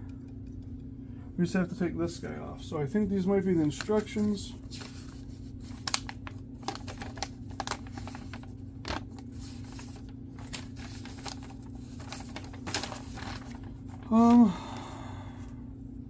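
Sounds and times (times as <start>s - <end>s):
steady low hum: 0.0s - 16.0s
paper crinkling and rustling: 3.2s - 14.4s.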